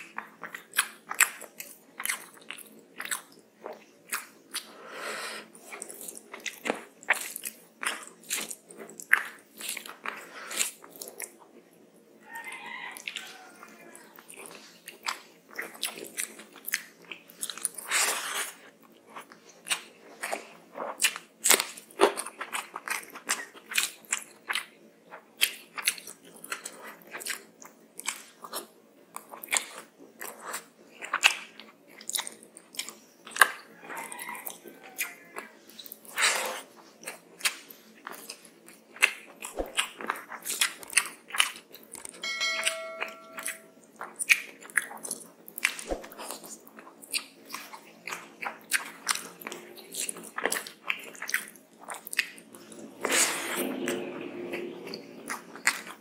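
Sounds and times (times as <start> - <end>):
chewing and biting food: 0.0 - 4.7, 5.6 - 11.6, 14.0 - 42.2, 44.0 - 54.0, 54.9 - 56.0.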